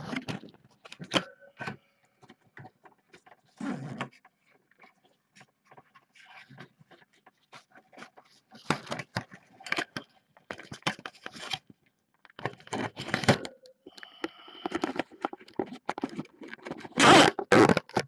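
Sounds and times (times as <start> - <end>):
crinkling and tearing: 14.6 - 18.0.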